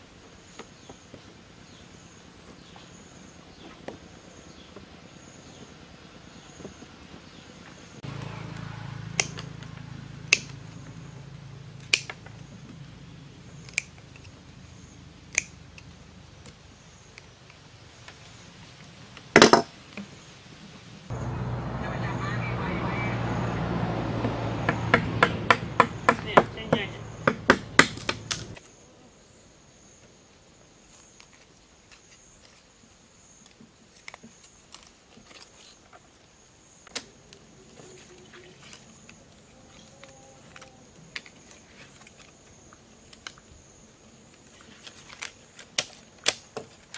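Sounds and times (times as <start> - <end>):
bamboo slats clicking: 8.6 - 10.6, 11.8 - 12.5, 13.6 - 14.4, 15.3 - 18.2, 27.2 - 28.6, 36.8 - 37.5, 43.0 - 43.5, 44.3 - 46.9
wire cutters snipping: 9.1 - 9.7, 27.5 - 28.6
knife chopping bamboo on board: 24.9 - 28.5.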